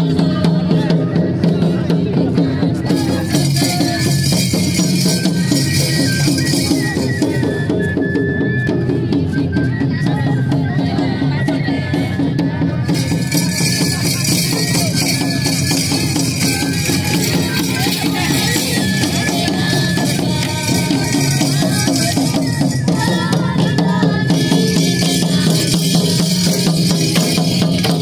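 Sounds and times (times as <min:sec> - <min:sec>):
rapid drumming music: 0:00.0 - 0:07.6, 0:11.3 - 0:28.0.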